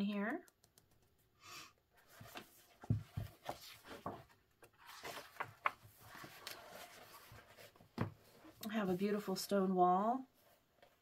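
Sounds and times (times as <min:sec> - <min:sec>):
paper pages rustling: 0:02.0 - 0:08.4.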